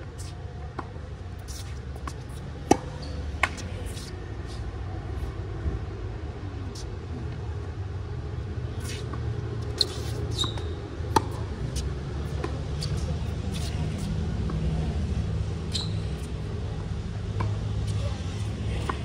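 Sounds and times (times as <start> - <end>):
low hum of city traffic: 0.0 - 19.0
shoe squeak: 0.1 - 4.6, 8.7 - 14.2, 15.6 - 16.4
tennis ball bouncing on hard court: 0.2 - 4.1, 8.8 - 13.7.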